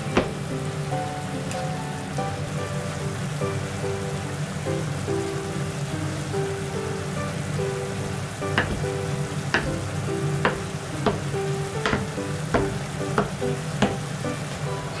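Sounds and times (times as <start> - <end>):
knife knocking on cutting board: 8.6 - 8.9, 9.6 - 9.8, 10.4 - 14.0.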